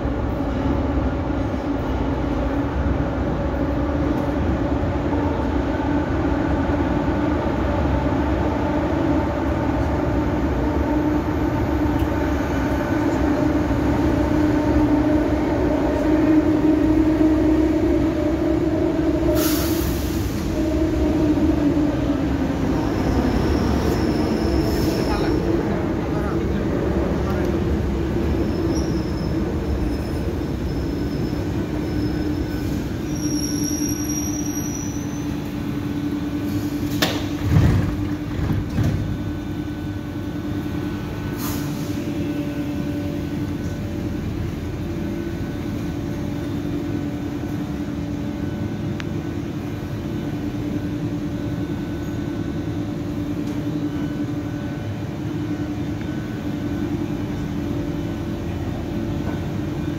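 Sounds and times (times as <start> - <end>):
train electrical hum: 0.0 - 59.9
train brake squeal: 19.3 - 20.6, 22.8 - 25.4, 28.4 - 35.5.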